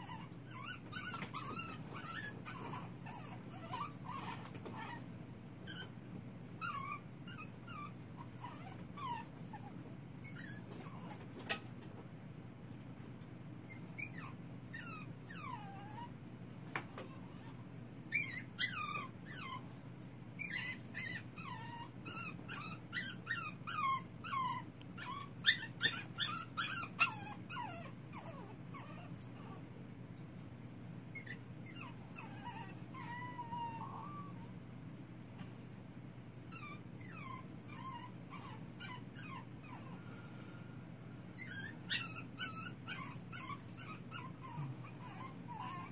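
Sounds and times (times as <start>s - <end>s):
puppy whimpering and crying: 0.0s - 6.0s, 6.6s - 11.2s, 13.7s - 16.2s, 17.0s - 19.8s, 20.4s - 29.7s, 31.1s - 34.5s, 36.5s - 40.0s, 41.3s - 45.9s
steady low hum: 26.1s - 45.9s.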